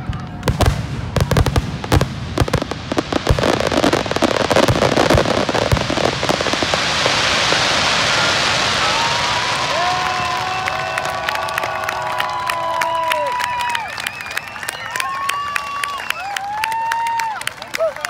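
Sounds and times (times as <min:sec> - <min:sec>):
fireworks bangs: 0:00.0 - 0:12.2
fireworks crackling: 0:00.0 - 0:15.5
crowd applause and cheering: 0:00.0 - 0:18.0.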